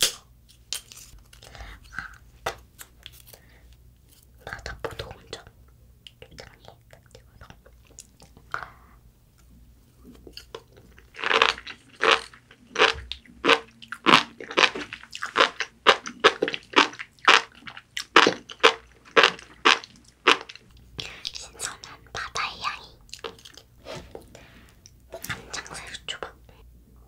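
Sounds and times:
crunchy chewing: 10.1s - 20.8s.

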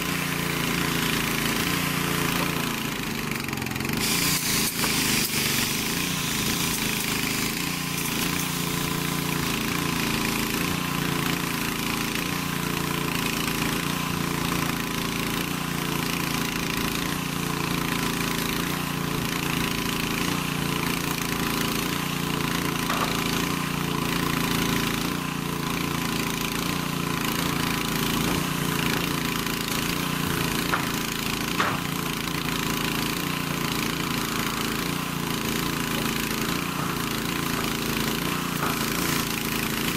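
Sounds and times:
paint sprayer motor drone: 0.0s - 39.9s
spray hissing: 3.9s - 9.5s, 34.3s - 39.9s.

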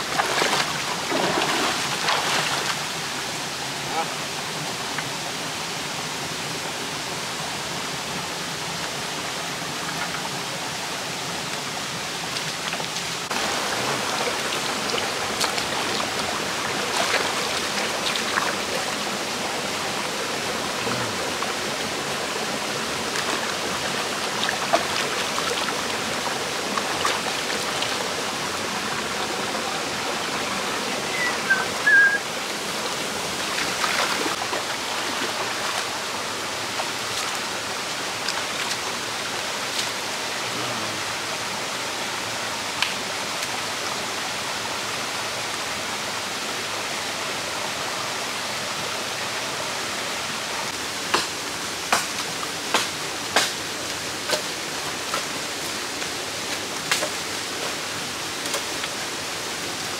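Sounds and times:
stream running over stones: 0.0s - 59.9s
small splashes and knocks: 0.1s - 2.8s
high chirp: 31.0s - 32.2s.

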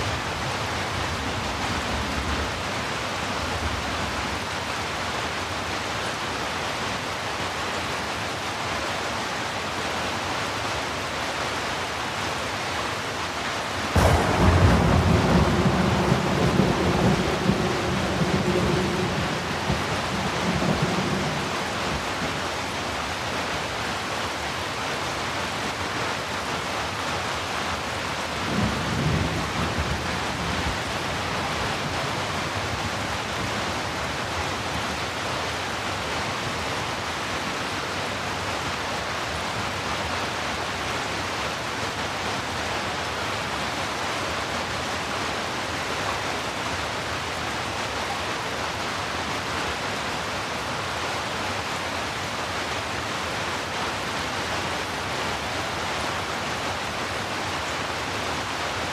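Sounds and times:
heavy rain falling: 0.0s - 58.9s.

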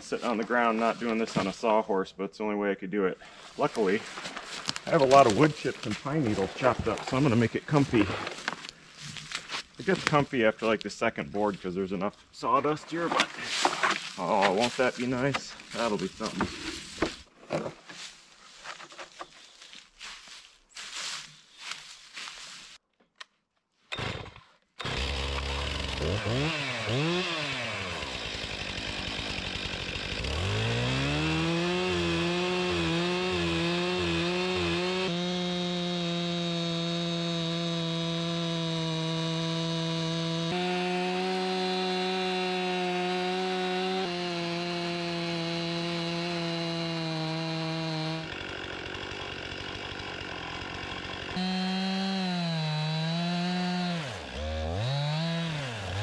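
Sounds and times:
chainsaw cutting log: 3.6s - 10.2s, 13.1s - 18.1s, 23.9s - 56.0s.

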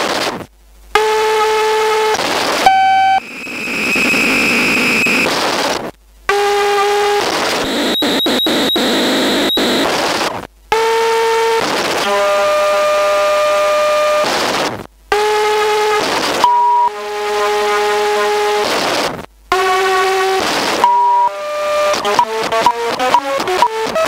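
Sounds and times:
buzzy synthesizer drones: 1.0s - 5.3s, 6.3s - 9.9s
sharp electronic clicks: 2.7s - 5.3s, 7.6s - 9.9s.

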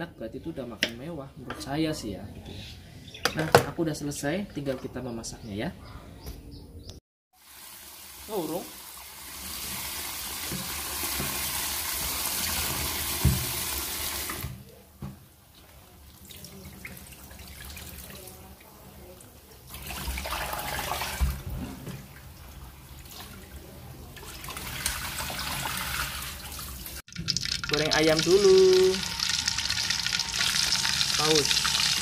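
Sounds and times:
tap water running into basin: 7.4s - 14.6s, 19.7s - 32.0s.

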